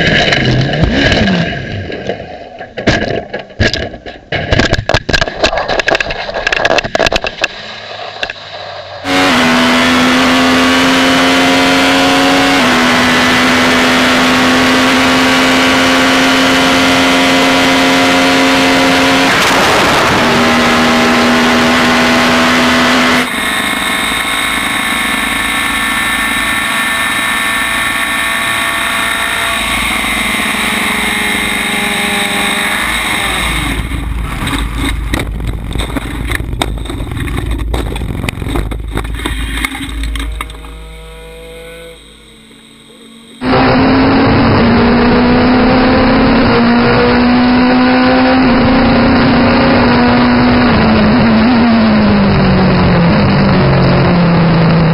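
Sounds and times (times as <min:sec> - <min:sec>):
heavy low rumble with clatter: 0:00.0 - 0:09.1, 0:23.2 - 0:42.7
race car engine at high revs: 0:06.5 - 0:54.9.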